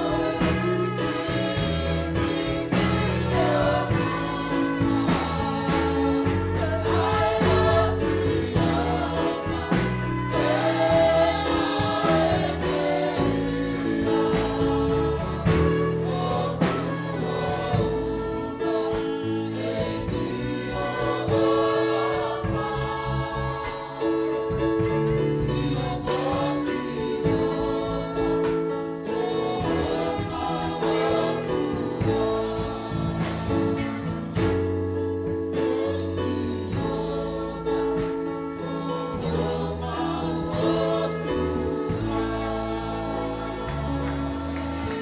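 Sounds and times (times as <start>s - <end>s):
women backing vocals: 0.0s - 24.8s, 35.4s - 45.0s
held bass notes: 0.0s - 45.0s.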